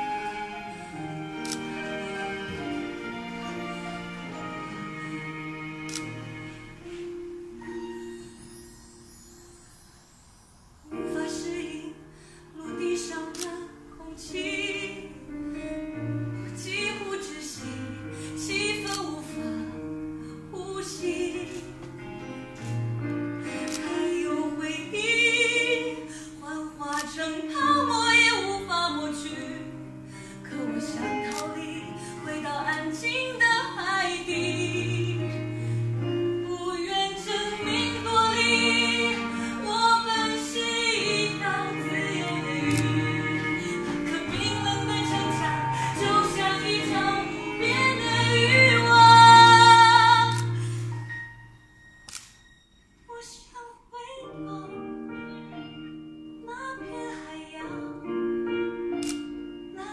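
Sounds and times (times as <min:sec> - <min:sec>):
woman singing slow melody: 0:10.8 - 0:15.6, 0:16.5 - 0:21.9, 0:23.7 - 0:50.6, 0:56.4 - 0:58.2.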